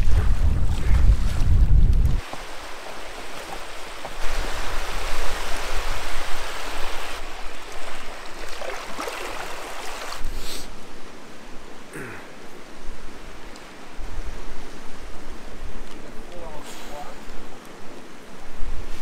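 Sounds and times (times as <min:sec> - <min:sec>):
wind buffeting microphone: 0:00.0 - 0:02.3
waves splashing against rocky shore: 0:02.2 - 0:10.3.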